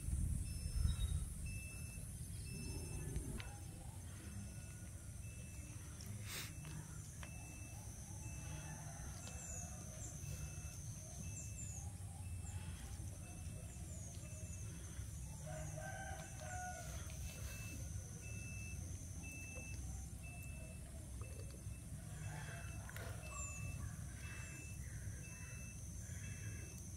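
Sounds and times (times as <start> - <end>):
rooster crowing: 8.4 - 10.8, 15.3 - 18.0, 22.0 - 23.5.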